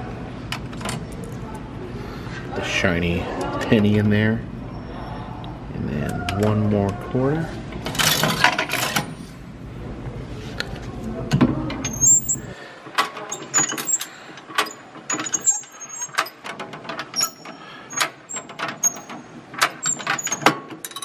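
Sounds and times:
metallic clicks and clunks: 11.3s - 21.0s
short high squeaks: 11.9s - 12.5s.

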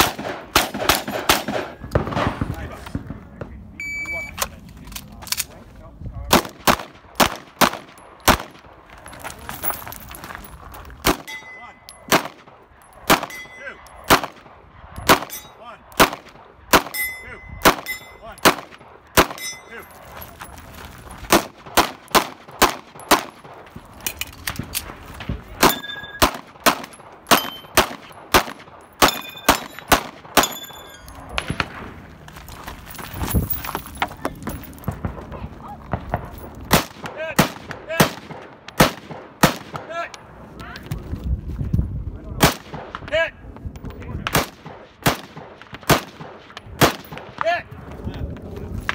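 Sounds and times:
pistol and rifle shots: 0.0s - 3.2s, 6.3s - 8.8s, 11.0s - 17.0s, 17.6s - 19.6s, 21.3s - 32.0s, 34.8s - 39.9s, 42.4s - 43.1s, 44.2s - 47.4s
steel targets ringing: 11.2s - 12.1s, 13.2s - 14.0s, 16.9s - 18.4s, 19.3s - 20.0s, 25.6s - 26.3s, 27.3s - 27.8s, 29.0s - 31.2s.

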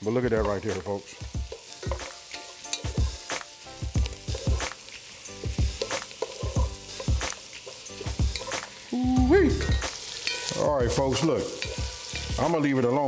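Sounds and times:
food sizzling in a pot: 0.0s - 13.0s
wooden spatula scraping a pot: 5.7s - 8.7s.

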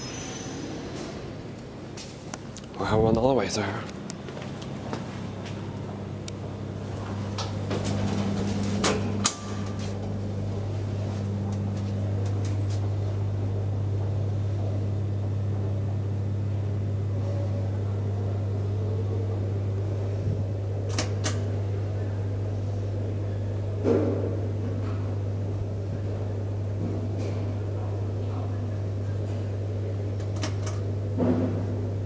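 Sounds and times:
elevator car hum: 0.0s - 32.0s.

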